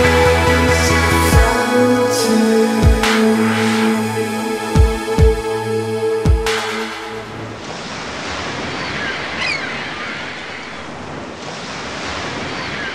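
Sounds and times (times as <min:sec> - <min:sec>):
background music: 0:00.0 - 0:07.6
waves washing on shore: 0:06.4 - 0:12.9.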